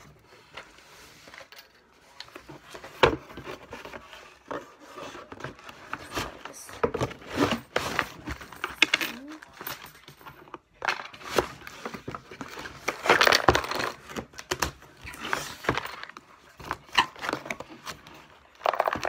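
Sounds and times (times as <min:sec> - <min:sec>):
cardboard rustling: 0:02.0 - 0:09.7
game pieces clattering: 0:18.6 - 0:19.0.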